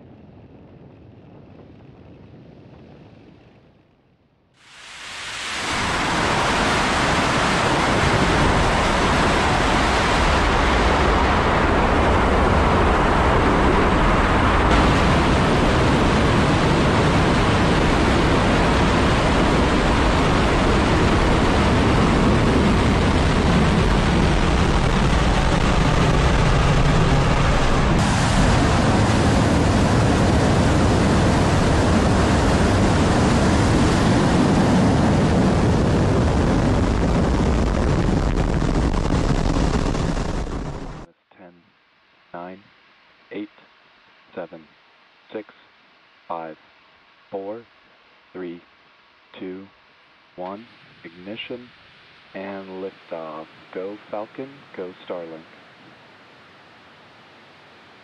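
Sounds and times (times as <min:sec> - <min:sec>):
rocket engine roar: 0:04.6 - 0:41.1, 0:46.3 - 0:46.6, 0:52.4 - 0:55.6.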